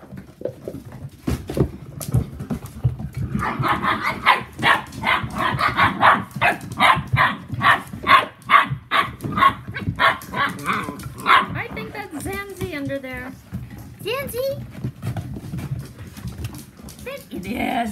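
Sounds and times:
puppies scuffling on a rug: 0:00.0 - 0:17.9
dog barking: 0:03.4 - 0:11.7.

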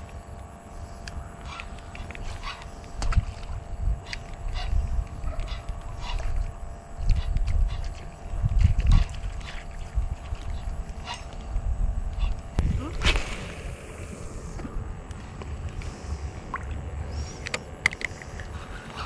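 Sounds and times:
wind gusting on microphone: 0:03.0 - 0:15.6.

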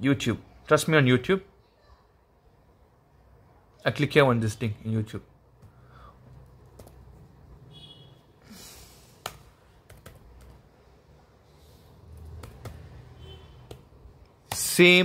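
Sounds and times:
keyboard keys clicking: 0:06.5 - 0:07.2, 0:09.2 - 0:10.6, 0:12.1 - 0:12.9.

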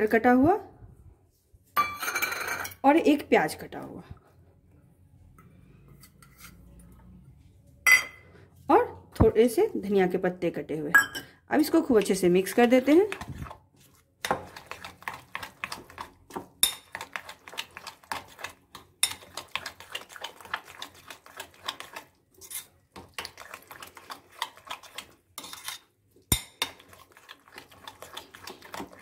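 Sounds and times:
spoon clinking against glass bowl: 0:07.9 - 0:08.2, 0:11.0 - 0:11.3, 0:16.6 - 0:16.9.

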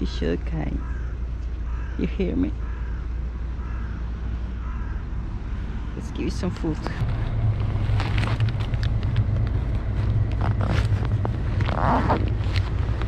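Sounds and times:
street traffic noise: 0:00.0 - 0:13.0
wind rumble on microphone: 0:04.2 - 0:13.0.

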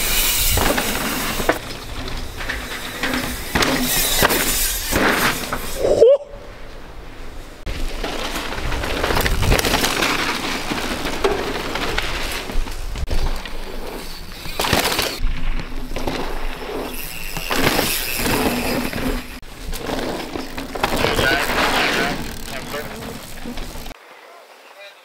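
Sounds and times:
bike clattering over bumps: 0:00.0 - 0:05.8, 0:06.7 - 0:24.0
tyres on dirt: 0:00.0 - 0:05.8, 0:06.5 - 0:24.0.

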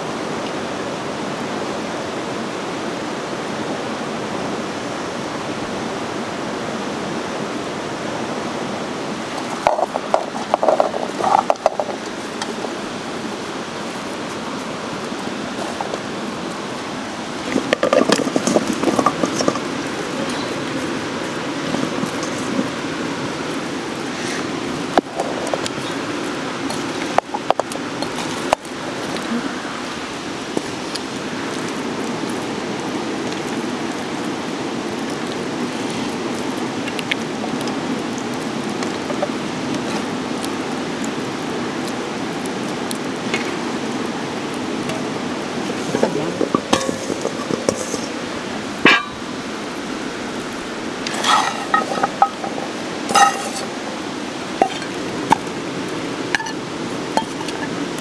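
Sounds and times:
dishes and utensils clinking: 0:45.9 - 0:48.1, 0:48.8 - 0:49.3, 0:51.1 - 0:53.7, 0:54.6 - 0:55.5, 0:56.3 - 0:56.6, 0:57.2 - 0:57.8.

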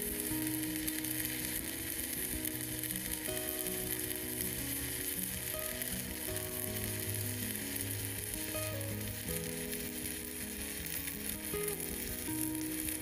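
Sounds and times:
welding arc crackling: 0:00.0 - 0:13.0.

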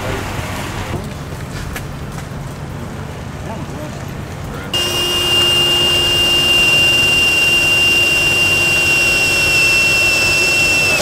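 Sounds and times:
steady machine whine: 0:04.8 - 0:11.0.

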